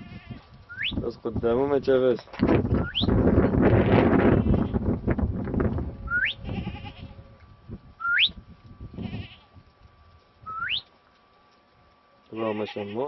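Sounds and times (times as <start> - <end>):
wind rumble on microphone: 0.0 - 10.9
rising whistles: 0.7 - 1.0, 2.8 - 3.2, 6.0 - 6.4, 8.0 - 8.4, 10.4 - 10.9.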